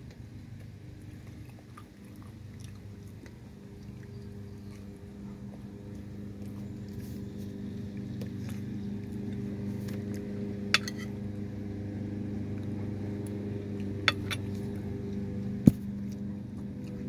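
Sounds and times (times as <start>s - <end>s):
steady low hum: 0.0s - 17.0s
metal spoon clinking on plate: 10.8s - 11.1s.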